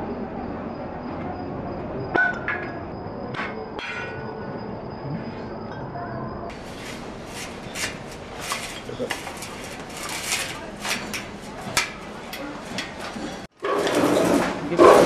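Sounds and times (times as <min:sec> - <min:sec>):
hand shears cutting metal: 0:06.5 - 0:12.0.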